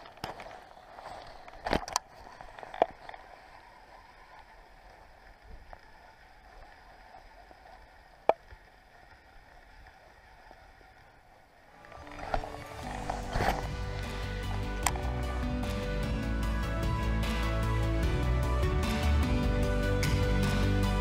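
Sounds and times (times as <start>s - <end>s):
water lapping around boat: 0.0s - 15.6s.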